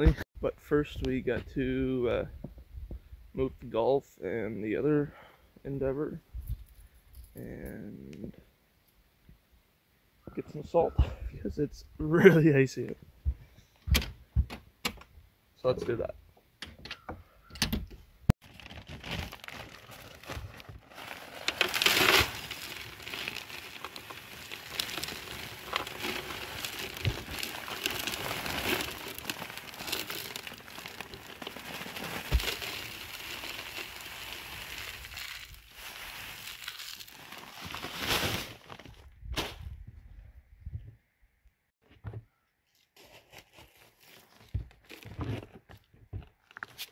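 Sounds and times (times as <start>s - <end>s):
rock salt pouring into bucket: 18.5s - 38.6s.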